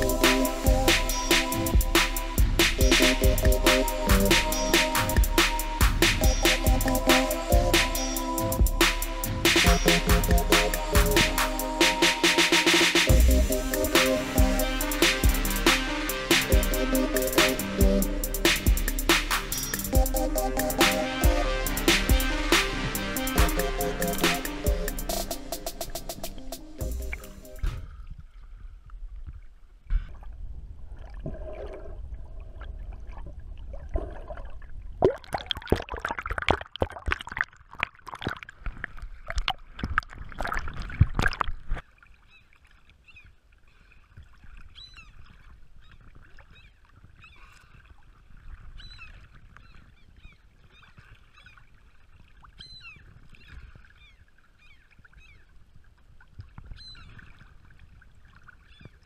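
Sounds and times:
gulls calling: 0:00.0 - 0:27.7
water splashing and sloshing: 0:00.0 - 0:59.0.

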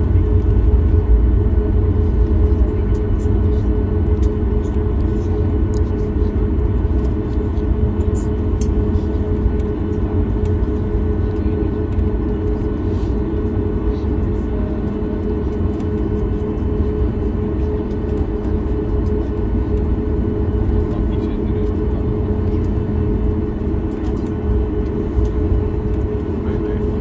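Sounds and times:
jet engines deep rumble: 0:00.0 - 0:27.0.

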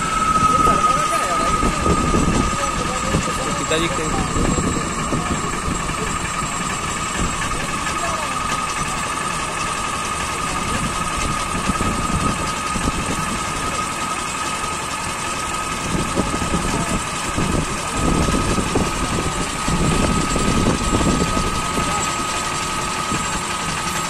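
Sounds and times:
high whine: 0:00.0 - 0:24.0
small engine running: 0:00.0 - 0:24.0.

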